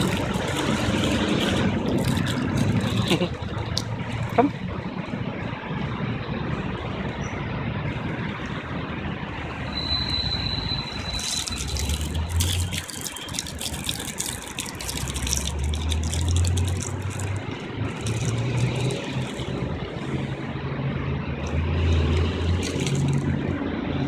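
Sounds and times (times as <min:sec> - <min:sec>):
scattered crackling: 0:00.0 - 0:04.4, 0:11.1 - 0:19.6
city road traffic: 0:00.0 - 0:24.0
low engine hum: 0:14.0 - 0:24.0.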